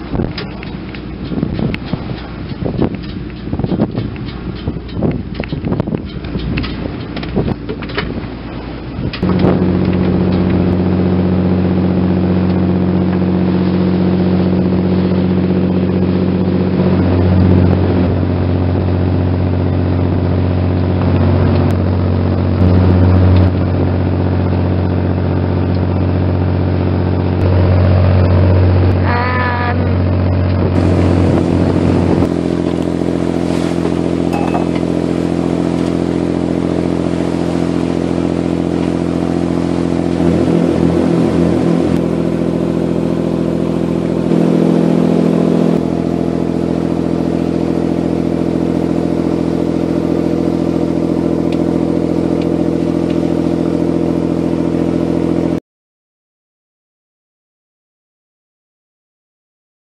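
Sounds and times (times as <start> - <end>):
boat diesel engine running: 0.0 - 55.6
wavering higher tone: 29.0 - 35.6.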